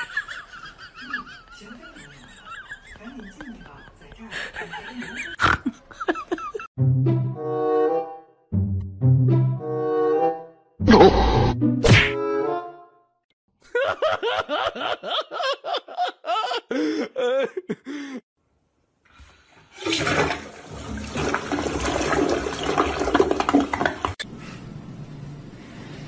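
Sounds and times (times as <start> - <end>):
water rushing from cooler tap: 19.7 - 24.2.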